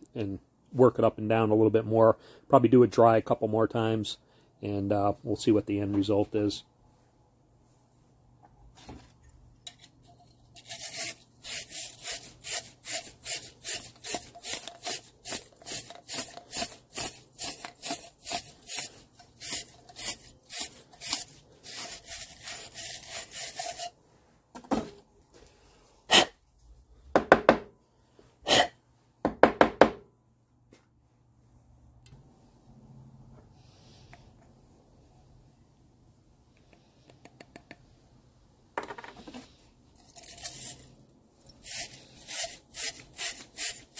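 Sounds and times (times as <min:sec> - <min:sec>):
wire brush scraping inside metal tube: 0:10.4 - 0:24.0, 0:40.0 - 0:43.9.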